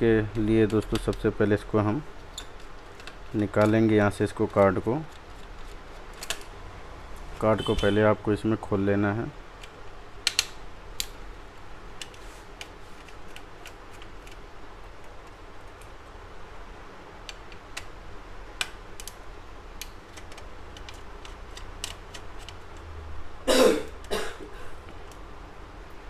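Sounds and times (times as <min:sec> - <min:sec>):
low steady hum: 0:00.0 - 0:26.0
person coughing: 0:23.5 - 0:24.8.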